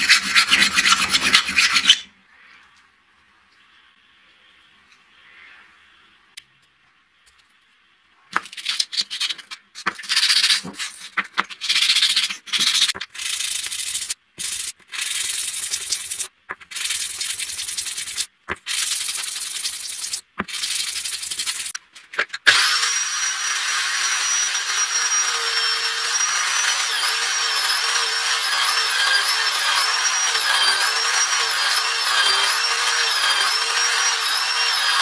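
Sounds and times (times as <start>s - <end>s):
metal rubbed on sandpaper: 0.0s - 2.0s, 8.7s - 21.8s, 24.2s - 35.0s.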